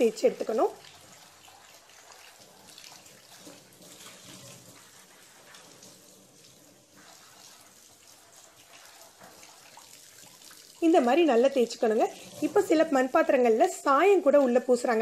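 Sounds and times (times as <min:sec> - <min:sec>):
tap water running into sink: 0:00.0 - 0:14.6
sponge scrubbing clay pot: 0:01.3 - 0:13.1.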